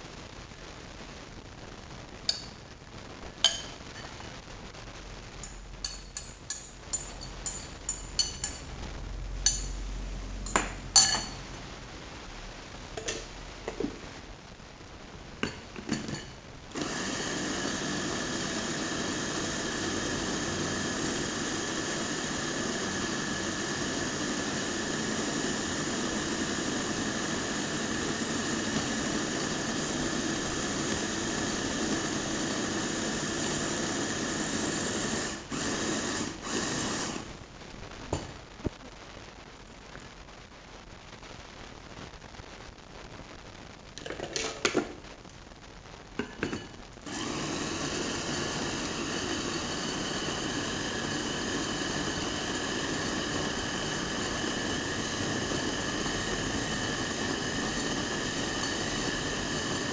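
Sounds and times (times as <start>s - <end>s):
food chopper whining: 16.7s - 37.3s, 47.1s - 59.9s.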